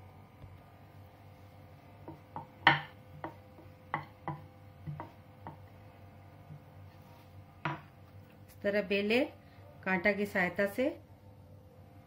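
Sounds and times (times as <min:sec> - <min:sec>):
rolling pin knocking on wooden board: 0:02.0 - 0:05.7, 0:07.6 - 0:07.9.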